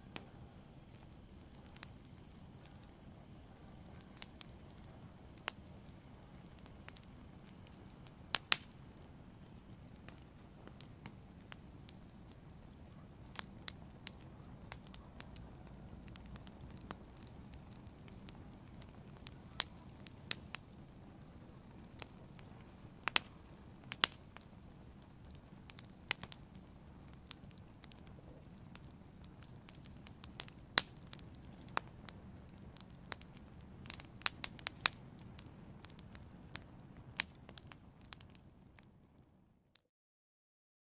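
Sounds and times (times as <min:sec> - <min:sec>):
logs crackling and popping: 0:00.0 - 0:39.8
wood fire burning: 0:00.0 - 0:39.8.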